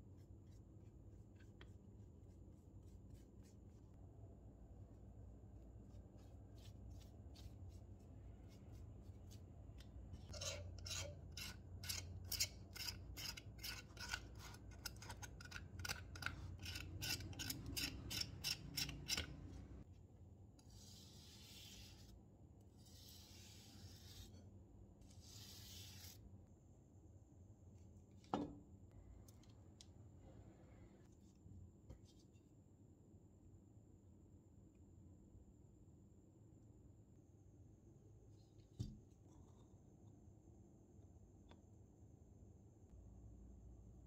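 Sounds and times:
metal pick scraping rust: 10.3 - 19.6.

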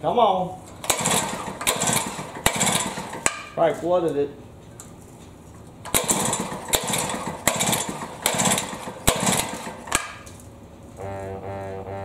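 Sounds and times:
engine turning over: 0.7 - 3.5, 5.8 - 10.4
recoil starter yanks: 0.7 - 3.6, 5.8 - 10.4.

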